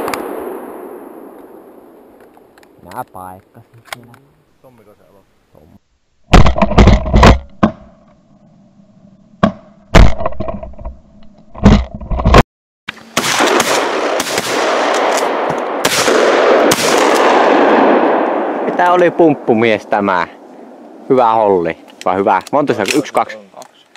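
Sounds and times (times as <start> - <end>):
shotgun blasts: 0.0 - 2.2, 13.1 - 21.0.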